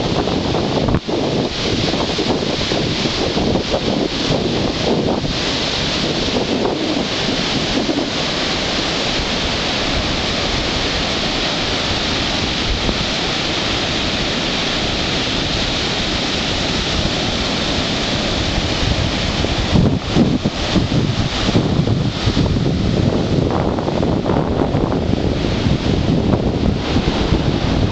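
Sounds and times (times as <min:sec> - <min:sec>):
surf breaking and washing: 0:00.0 - 0:27.9
wind rumbling on microphone: 0:00.0 - 0:27.9.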